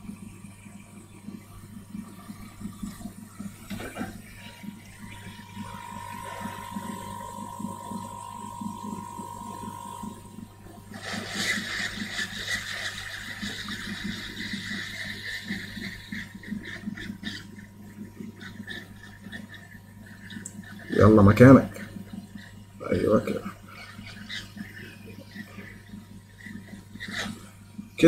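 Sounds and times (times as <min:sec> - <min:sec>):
low hum: 0:00.0 - 0:11.0
hot air blower hissing: 0:04.4 - 0:16.8.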